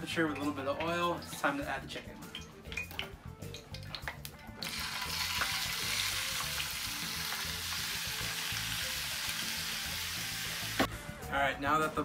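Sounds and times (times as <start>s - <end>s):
chicken sizzling in hot oil: 4.6s - 10.9s.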